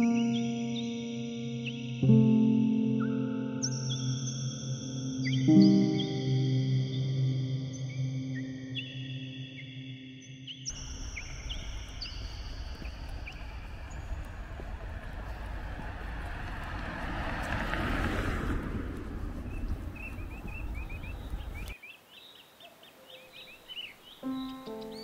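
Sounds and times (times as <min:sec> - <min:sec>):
birds chirping: 0:10.5 - 0:25.0
road traffic rumble: 0:10.7 - 0:21.8
vehicle passing: 0:10.7 - 0:21.8.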